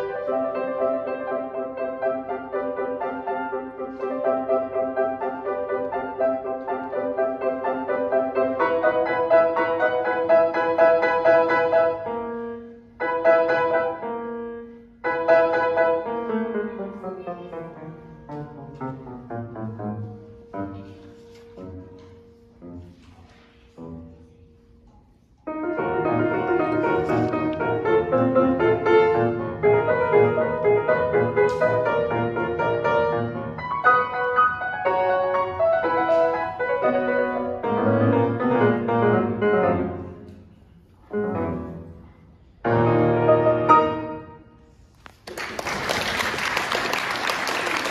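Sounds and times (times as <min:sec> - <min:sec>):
grand piano playing: 0:00.0 - 0:24.8, 0:25.4 - 0:44.8
audience applause: 0:45.2 - 0:47.9.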